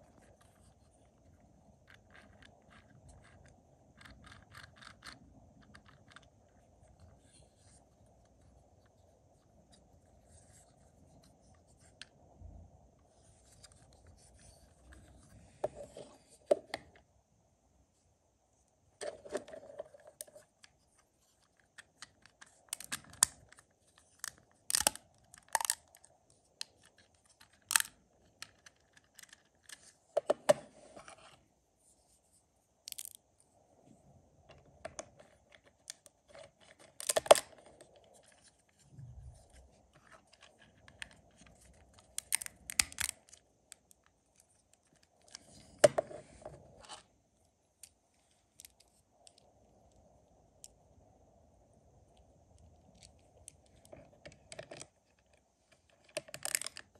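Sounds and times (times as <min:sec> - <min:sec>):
plastic parts clicking together: 0:21.4 - 0:30.6, 0:32.9 - 0:33.2, 0:34.9 - 0:37.9, 0:40.2 - 0:44.0, 0:52.9 - 0:56.9.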